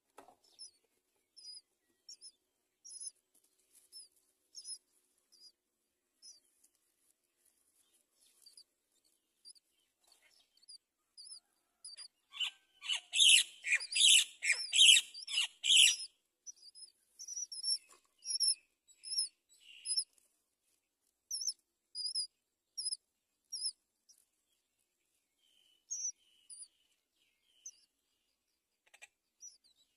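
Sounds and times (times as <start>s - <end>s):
harsh rapid bird calls: 0.4s - 3.2s, 9.4s - 20.1s, 21.3s - 24.2s, 25.5s - 26.9s
high bird chirps: 0.4s - 3.2s, 9.4s - 20.1s, 21.3s - 23.8s, 25.5s - 27.9s.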